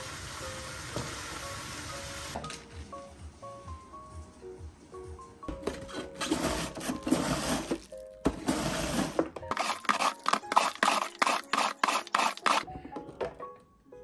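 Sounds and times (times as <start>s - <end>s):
background music: 0.0s - 14.0s
cabbage scraped on mandoline slicer: 5.9s - 12.7s.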